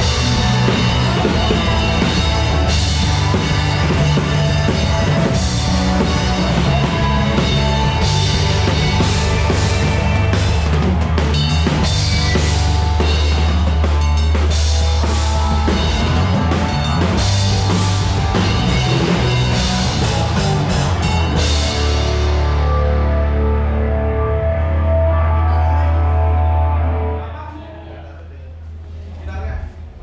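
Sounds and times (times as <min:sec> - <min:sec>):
drum kit with crash cymbals: 0:00.0 - 0:22.6
heavy bass line: 0:00.0 - 0:27.4.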